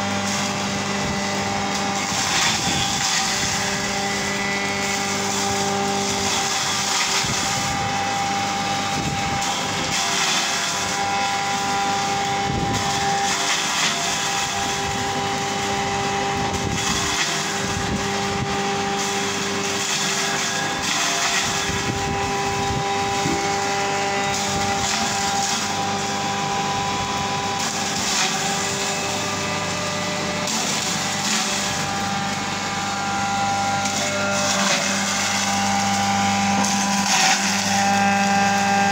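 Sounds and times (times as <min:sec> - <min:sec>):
grinder motor hum: 0:00.0 - 0:38.9
onions grinding: 0:15.6 - 0:26.8, 0:27.4 - 0:38.9.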